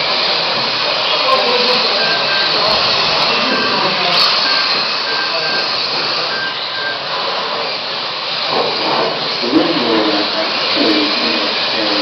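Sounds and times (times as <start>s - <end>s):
short high beeps: 1.4s - 7.1s.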